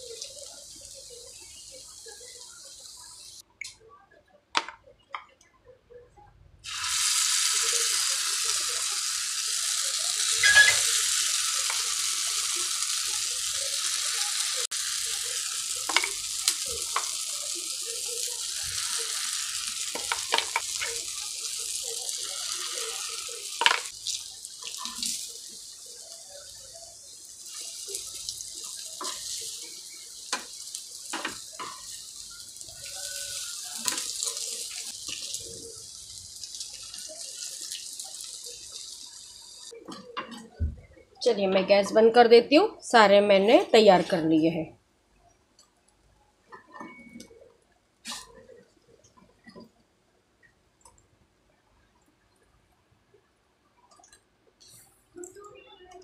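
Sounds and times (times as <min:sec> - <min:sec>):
batter sizzling in hot oil: 0:00.0 - 0:03.4, 0:06.6 - 0:39.8.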